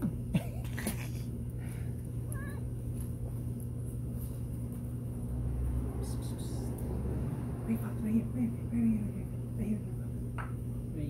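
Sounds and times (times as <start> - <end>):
steady low hum: 0.0 - 11.0
cat meowing faintly: 2.3 - 2.7.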